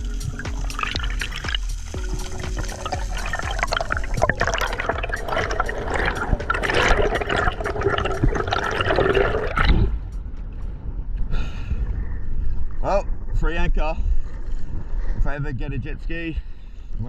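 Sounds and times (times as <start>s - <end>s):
underwater bubbles gurgling: 0.0s - 10.0s
water rushing past: 0.0s - 10.1s.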